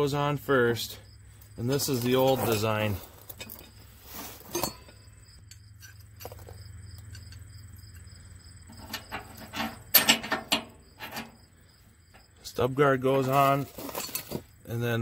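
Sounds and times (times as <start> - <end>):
light metallic clinks: 4.5 - 11.4.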